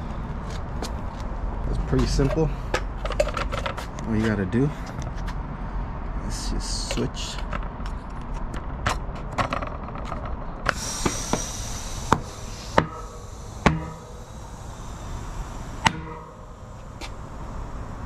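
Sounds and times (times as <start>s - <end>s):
tire bead snapping onto rim: 8.8s - 14.3s, 15.8s - 16.6s
rush of air: 10.4s - 18.0s.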